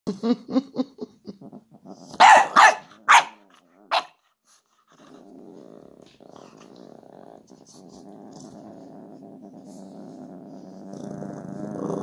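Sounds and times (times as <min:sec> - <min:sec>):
dog yipping: 0:02.2 - 0:04.1
dog barking: 0:02.2 - 0:04.2.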